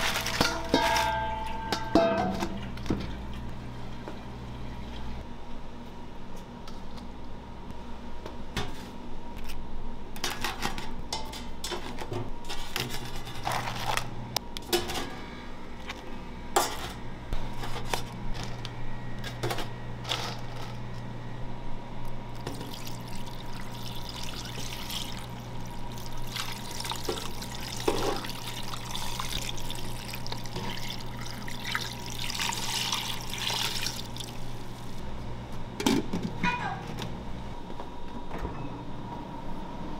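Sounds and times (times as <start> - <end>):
liquid pouring and splashing: 22.4 - 34.5.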